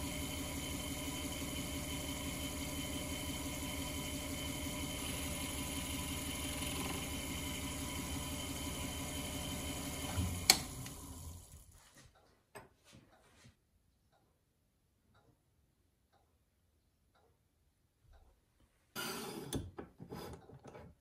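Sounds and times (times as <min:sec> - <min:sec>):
lathe motor hum: 0:00.0 - 0:11.8.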